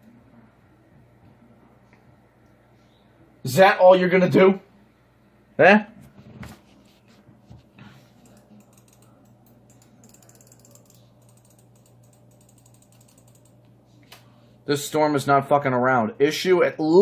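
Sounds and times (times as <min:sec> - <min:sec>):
steady low hum: 0:00.0 - 0:17.0
light rapid ticking: 0:08.2 - 0:13.7.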